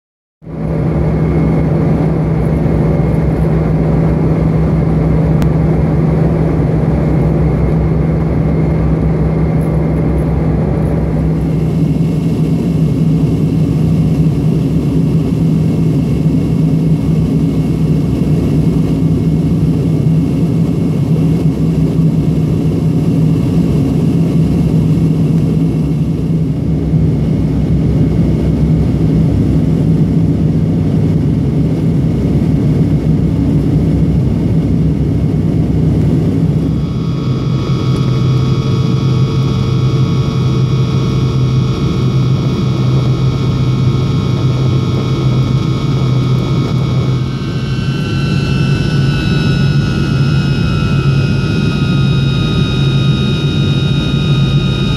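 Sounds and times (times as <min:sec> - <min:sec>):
airliner cabin engine drone: 0:00.4 - 0:54.9.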